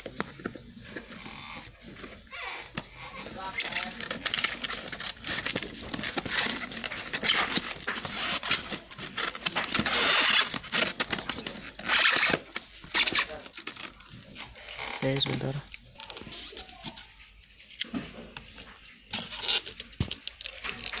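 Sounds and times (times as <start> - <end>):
foam and cardboard scraping: 0.0 - 15.6.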